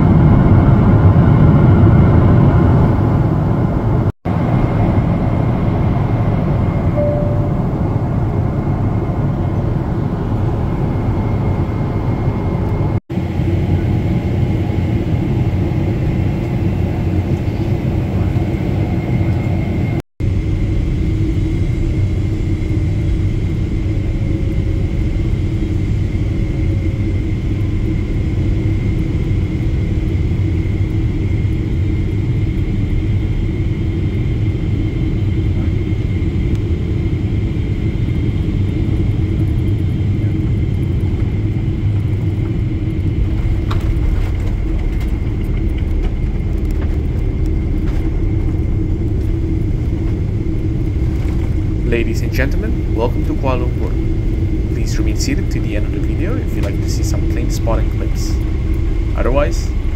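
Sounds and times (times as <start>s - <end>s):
airplane cabin engine rumble: 0.0s - 59.9s
faint high tone: 6.9s - 8.1s.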